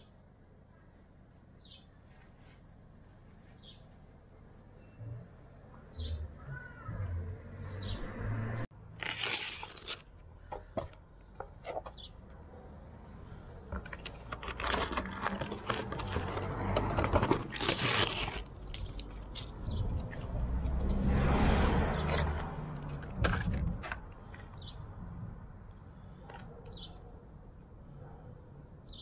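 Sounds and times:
card tearing: 9.0s - 10.1s, 14.4s - 18.6s
plastic crackling: 9.0s - 10.2s, 13.7s - 19.5s.

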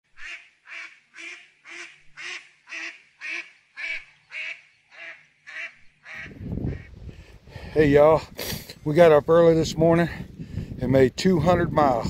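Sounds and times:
waterfowl calling: 0.1s - 7.0s.

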